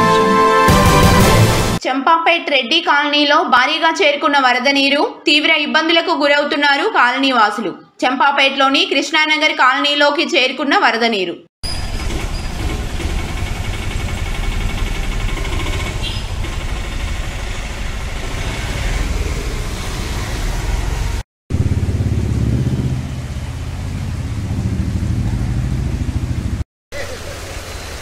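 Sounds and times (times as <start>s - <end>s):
floodwater rumble: 11.7s - 28.0s
vehicle engine running: 11.7s - 28.0s
rush of noise: 12.8s - 28.0s.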